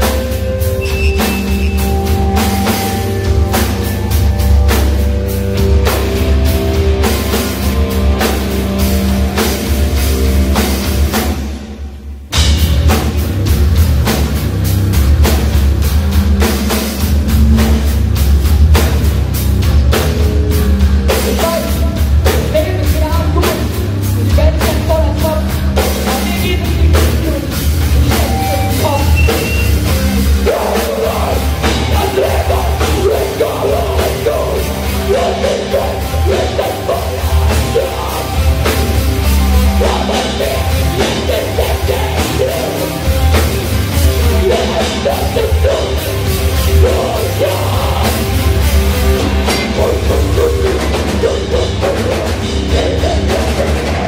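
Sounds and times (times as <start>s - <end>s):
live rock band playing: 0.0s - 54.0s
vocalist singing and shouting: 20.8s - 54.0s.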